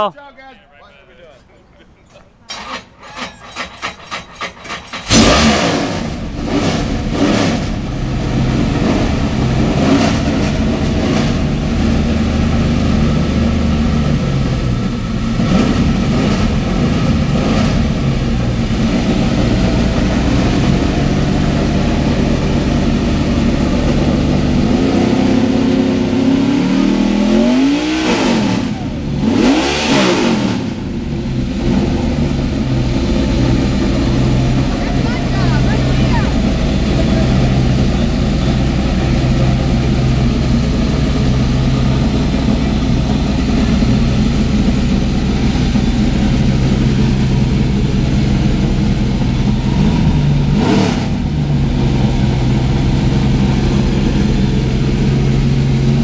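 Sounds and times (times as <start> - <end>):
engine cranking on starter: 2.1 - 11.7
engine idling and revving: 2.4 - 56.0.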